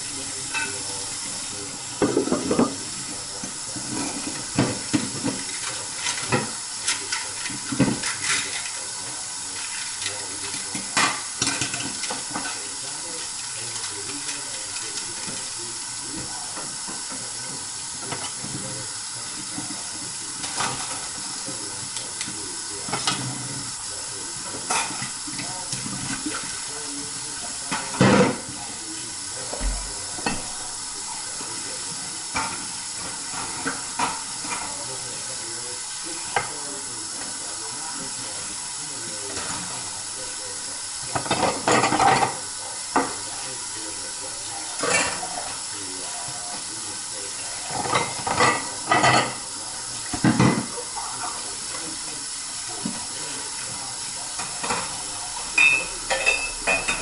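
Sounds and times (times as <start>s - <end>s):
dishes clinking together: 0.5s - 1.0s, 2.0s - 2.9s, 41.1s - 43.2s, 47.7s - 49.4s, 50.1s - 50.7s, 54.4s - 57.0s
tap running into sink: 29.5s - 30.6s, 50.1s - 50.7s.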